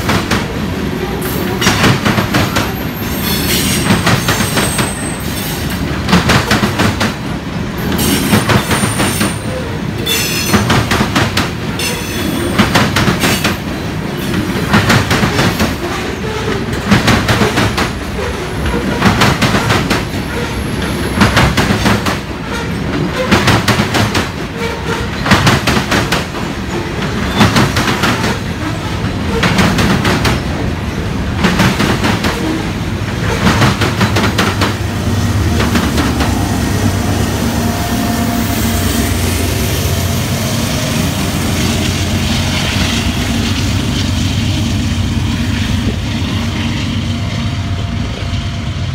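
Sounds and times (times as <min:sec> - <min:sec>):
train wheels clicking over rail joints: 0:00.0 - 0:36.6.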